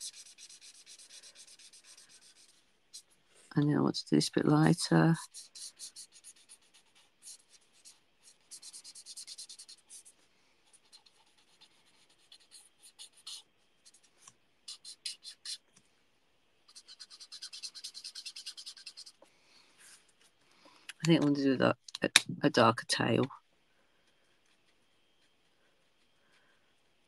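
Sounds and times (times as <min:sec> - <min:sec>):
marker scratching over card: 0:00.0 - 0:03.1, 0:05.2 - 0:15.6, 0:16.7 - 0:19.2.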